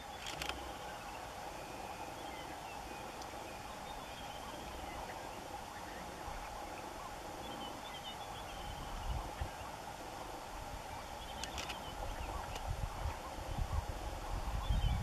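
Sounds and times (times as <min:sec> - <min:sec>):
animal chorus: 0:00.0 - 0:15.0
faint short chirping calls: 0:11.0 - 0:12.6.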